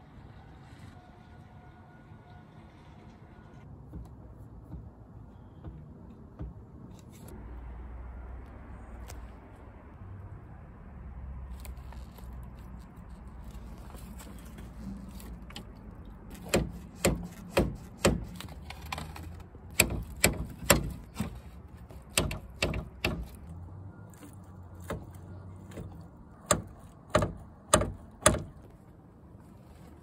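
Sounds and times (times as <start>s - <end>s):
sharp knocks on metal: 16.3s - 18.4s, 19.7s - 21.4s, 22.0s - 23.4s, 25.8s - 28.7s.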